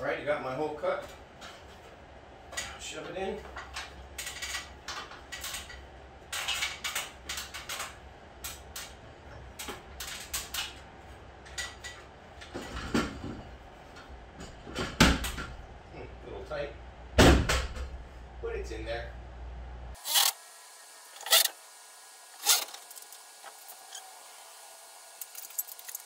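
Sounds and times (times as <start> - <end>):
loud thump: 17.2 - 17.9.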